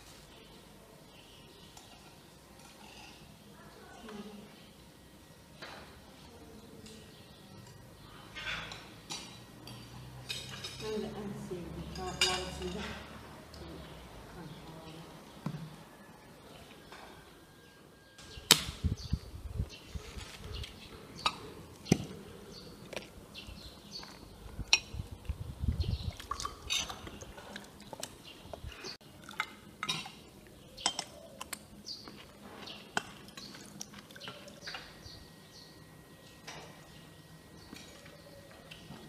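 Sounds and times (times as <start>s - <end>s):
cutlery clinking on plates: 6.8s - 11.0s, 11.9s - 13.2s.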